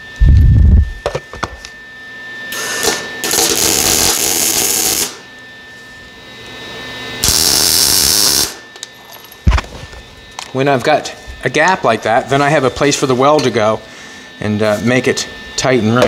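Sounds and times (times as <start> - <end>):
welding arc: 2.5 - 5.2, 7.2 - 8.6.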